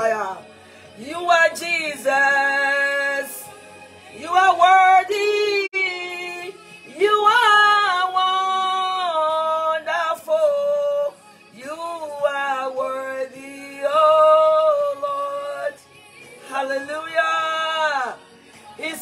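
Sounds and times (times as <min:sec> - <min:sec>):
woman singing slow worship song: 0:00.0 - 0:19.0
woman breathing: 0:00.5 - 0:01.0.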